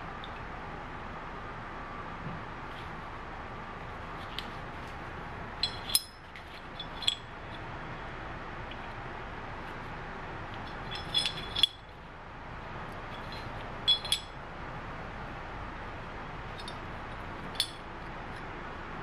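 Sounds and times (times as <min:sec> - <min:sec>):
steady background noise: 0:00.0 - 0:19.0
metal parts clinking together: 0:05.6 - 0:07.6, 0:10.5 - 0:12.0, 0:13.1 - 0:14.4, 0:16.6 - 0:16.8, 0:17.5 - 0:17.8.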